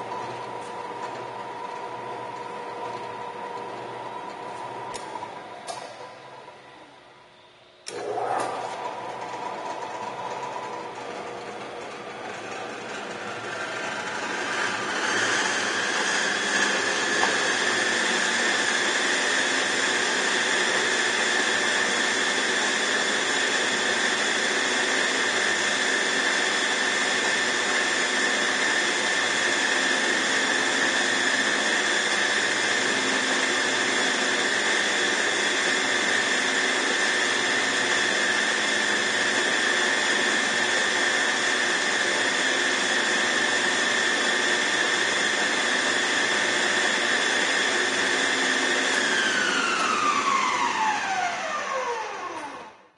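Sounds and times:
drill press motor whining: 0:00.0 - 0:52.9.

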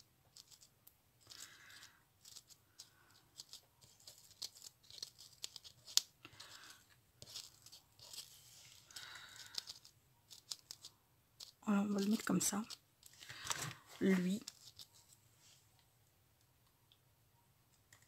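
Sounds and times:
light clicking of paper pieces: 0:00.4 - 0:13.8
paper rustling: 0:00.4 - 0:15.2.

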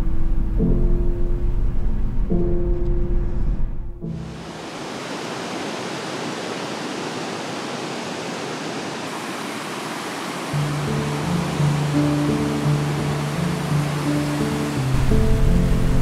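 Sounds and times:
background music: 0:00.0 - 0:04.4, 0:10.6 - 0:16.0
rushing water: 0:04.1 - 0:16.0.

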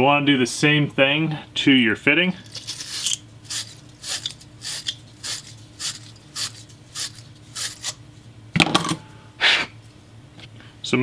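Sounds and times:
wire brush scraping copper fitting: 0:02.4 - 0:08.0.

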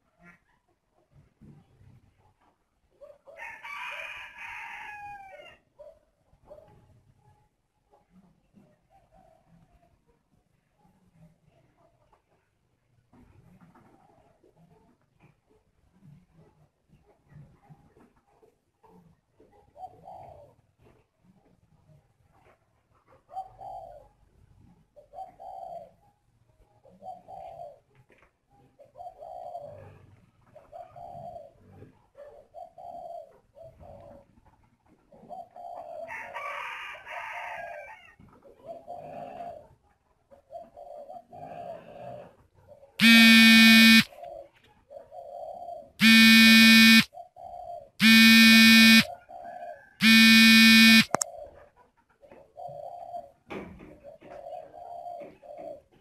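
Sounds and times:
doves cooing: 0:19.7 - 0:20.6, 0:23.2 - 0:24.2, 0:24.8 - 0:26.0, 0:26.8 - 0:27.9, 0:28.8 - 0:34.3, 0:35.1 - 0:36.4, 0:38.6 - 0:51.6, 0:52.2 - 0:56.0
loud steady-pitched calls: 0:43.0 - 0:44.1, 0:46.0 - 0:47.1, 0:48.0 - 0:49.1, 0:50.0 - 0:51.2.

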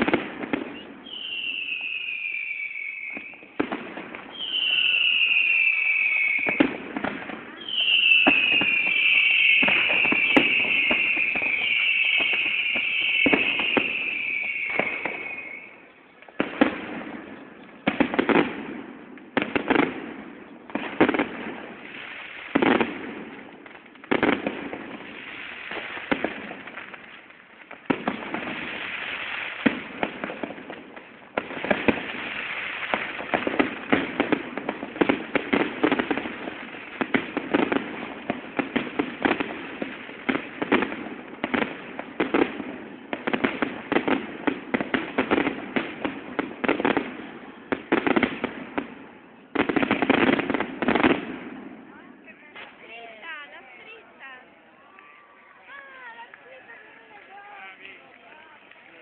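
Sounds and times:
firework whistle: 0:00.0 - 0:18.8
firework bangs and crackling: 0:00.0 - 0:59.0.

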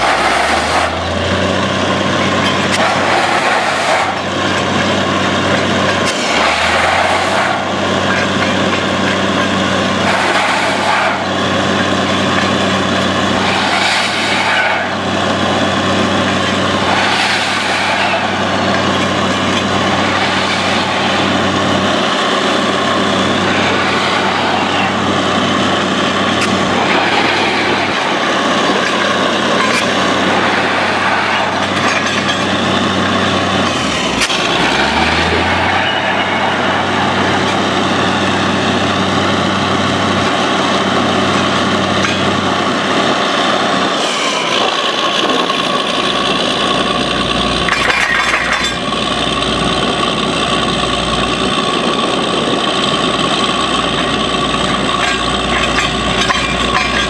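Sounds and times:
hiss and rattle of drilling: 0:00.0 - 0:38.8
drilling rig engine drone: 0:00.0 - 0:57.0.

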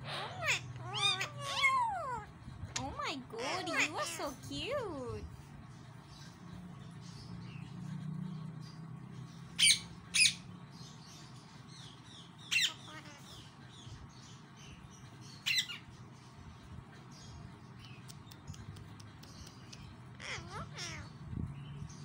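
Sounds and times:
parakeet squawking: 0:00.0 - 0:05.0, 0:09.6 - 0:10.5, 0:12.4 - 0:13.6, 0:15.3 - 0:15.9, 0:19.4 - 0:21.2
soft bird chirps: 0:00.0 - 0:22.0.

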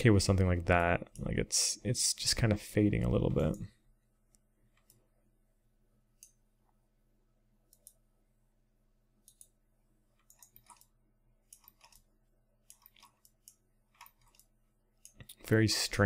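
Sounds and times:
computer mouse and keyboard clicks: 0:07.7 - 0:08.0, 0:09.2 - 0:10.9, 0:11.5 - 0:15.4.

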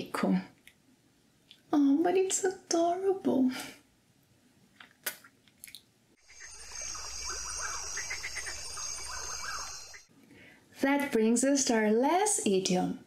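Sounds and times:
high insect drone: 0:06.2 - 0:10.1
short chirping calls: 0:06.2 - 0:10.1.

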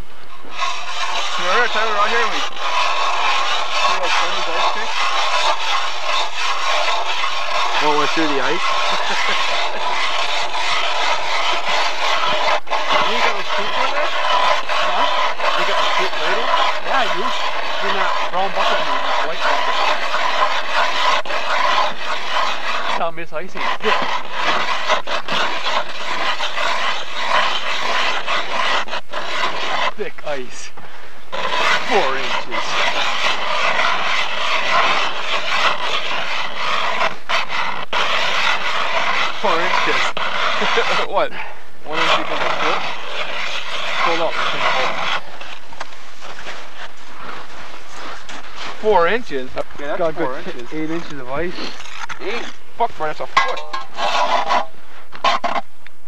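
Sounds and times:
ice auger grinding ice: 0:00.0 - 0:55.7
ice chips scraping and clicking: 0:31.4 - 0:41.3, 0:42.1 - 0:54.4.

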